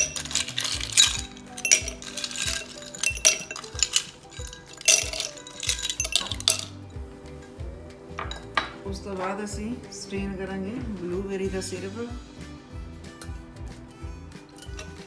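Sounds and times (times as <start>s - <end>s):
ice cubes clinking in glass: 0.0s - 6.8s, 14.5s - 15.0s
background music: 0.0s - 15.0s.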